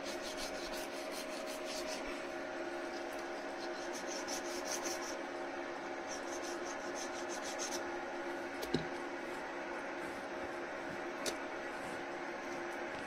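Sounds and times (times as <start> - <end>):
knife sawing through meat: 0.0 - 2.3, 3.3 - 5.2, 6.1 - 7.9
steady hum: 0.0 - 13.0.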